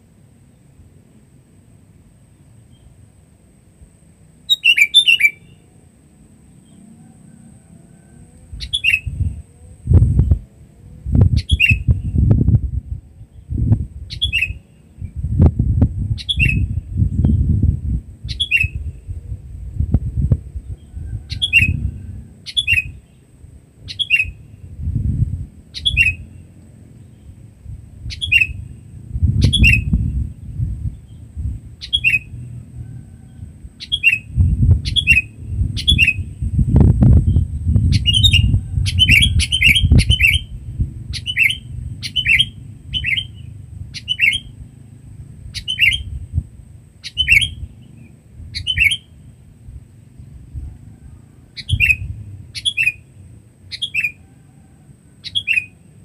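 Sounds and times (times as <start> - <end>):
bird calling: 4.5 - 10.0, 23.8 - 24.5, 37.9 - 44.6, 47.0 - 49.3, 50.8 - 55.9
low rumble: 9.0 - 14.1, 15.0 - 22.3, 34.3 - 46.8.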